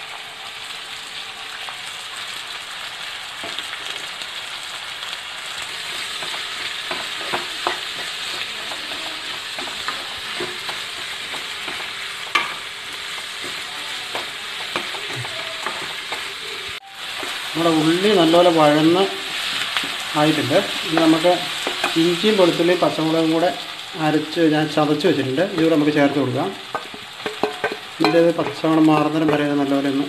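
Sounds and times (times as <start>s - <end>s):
onions sizzling in hot oil: 0.0s - 30.0s
spatula scraping and knocking pan: 5.6s - 16.5s, 17.1s - 22.8s, 25.4s - 29.5s.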